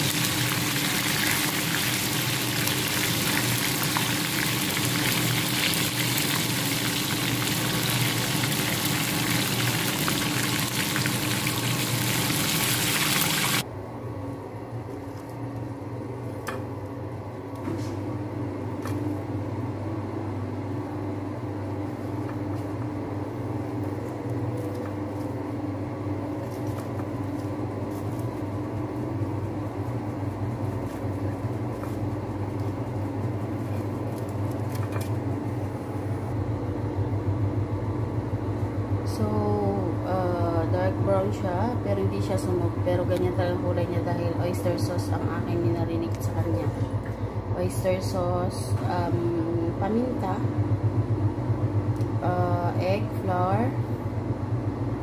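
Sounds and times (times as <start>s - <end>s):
chicken deep-frying in oil: 0.0s - 13.7s
quiet steady hum: 0.0s - 55.0s.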